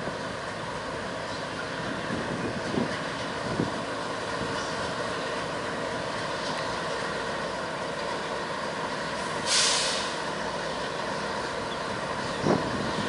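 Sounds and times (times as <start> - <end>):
diesel locomotives running: 0.0 - 13.0
air hiss: 9.4 - 10.3.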